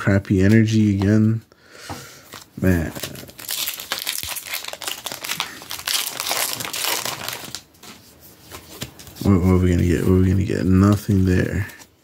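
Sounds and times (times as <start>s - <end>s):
foil wrapper crinkling: 2.4s - 7.9s.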